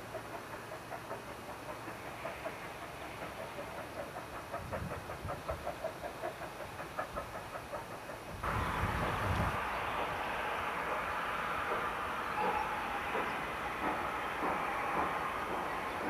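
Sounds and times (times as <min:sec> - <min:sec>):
steam locomotive exhaust beats: 0:00.0 - 0:16.0.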